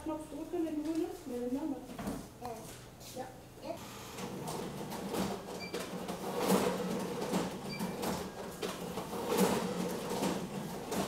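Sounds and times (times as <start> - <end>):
franking machine motor hum: 3.8 - 11.0.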